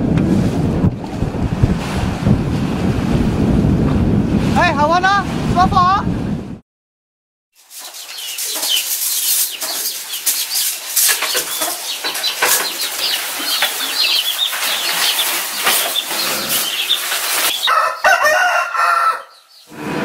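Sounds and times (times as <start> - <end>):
chicks chirping: 7.6 - 19.8.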